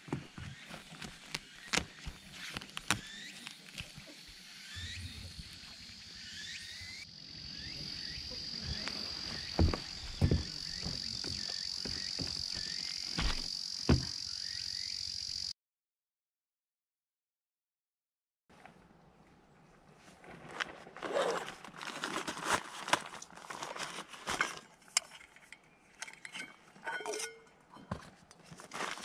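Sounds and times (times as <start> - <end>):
insect chirps: 0.4 - 15.6
insect trill: 1.4 - 15.5
sharp knocks: 9.5 - 14.2.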